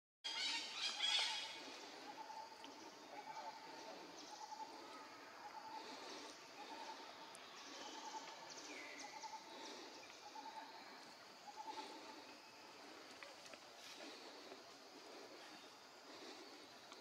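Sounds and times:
short repeated calls: 0.3 - 1.8
high insect hiss: 0.3 - 17.0.

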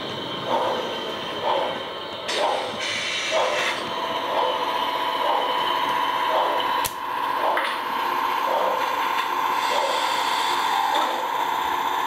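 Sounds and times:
model train motor whine: 0.0 - 12.0.

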